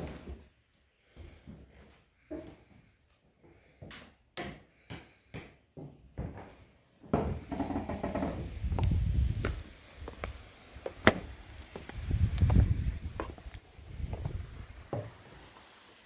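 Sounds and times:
footsteps on wooden floor: 1.1s - 15.2s
wind rumble on microphone: 8.3s - 10.4s, 11.2s - 14.9s.

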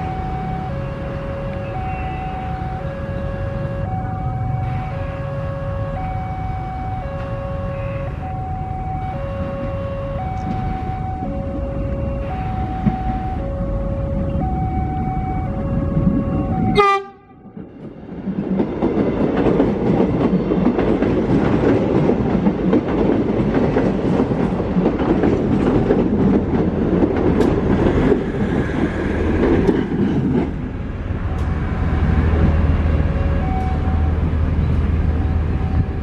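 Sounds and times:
train horn: 0.6s - 3.9s, 4.6s - 8.3s, 15.5s - 17.6s
train wheels rumbling on rails: 5.9s - 36.0s.

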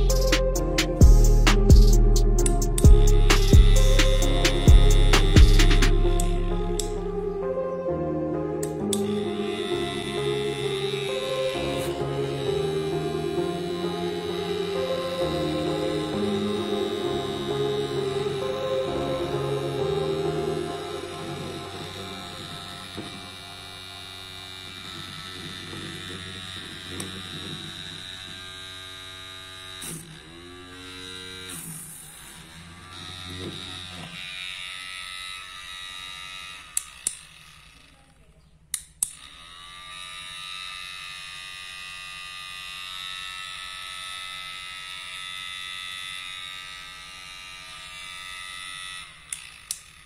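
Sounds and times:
low buzz: 0.0s - 34.8s
electric motor whine: 0.0s - 50.0s
thin high whine: 8.7s - 27.8s.

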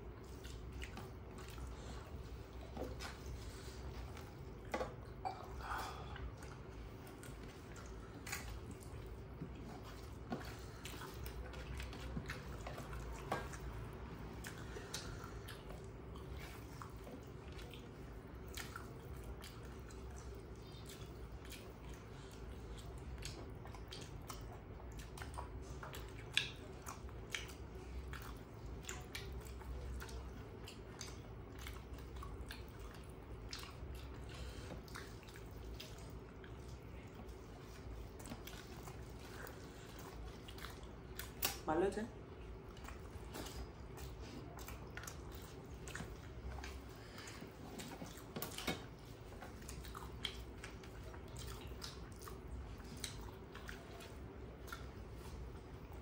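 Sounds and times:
steady low hum: 0.0s - 56.0s
wet chewing: 0.0s - 56.0s
small clicks and smacks: 40.5s - 41.7s.

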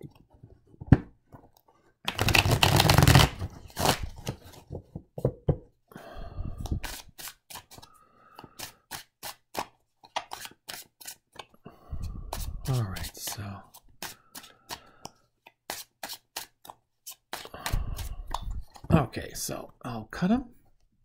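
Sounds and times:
cards riffle-shuffled: 2.1s - 4.6s, 6.6s - 11.5s, 12.3s - 14.8s, 15.4s - 18.9s
cards shuffled overhand clicking: 2.1s - 4.6s, 6.7s - 11.5s, 12.3s - 18.9s.

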